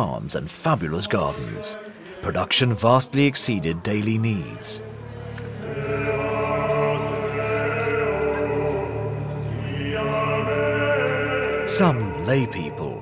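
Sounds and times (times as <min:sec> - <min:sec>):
choir chanting long notes: 0:04.0 - 0:13.0.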